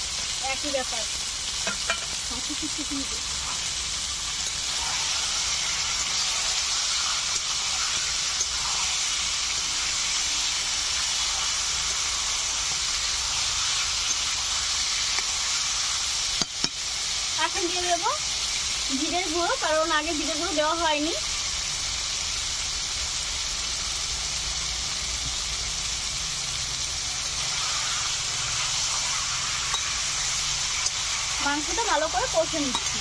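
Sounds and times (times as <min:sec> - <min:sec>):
chicken sizzling in hot oil: 0:00.0 - 0:33.0
metal spatula clicking on pan: 0:32.7 - 0:33.0.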